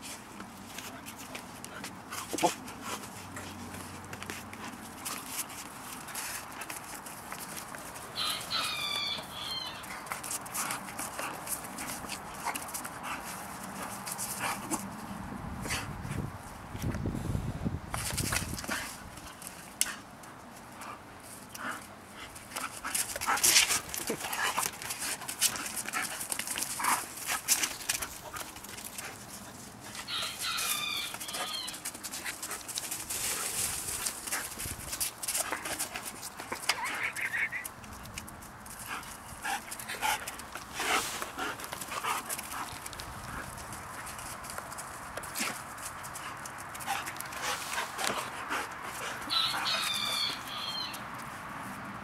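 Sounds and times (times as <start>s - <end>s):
paws scuffing on concrete: 0.0s - 17.0s, 17.9s - 51.8s
high-pitched dog whine: 30.1s - 31.8s, 49.3s - 51.0s
dog whining: 49.3s - 51.0s.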